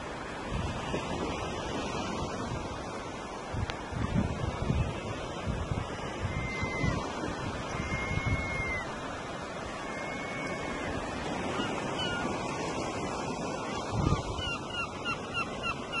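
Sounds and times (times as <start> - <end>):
wind buffeting microphone: 0.0 - 14.9
surf washing on a beach: 0.0 - 16.0
high downward-sliding calls: 7.6 - 9.0, 9.6 - 12.3.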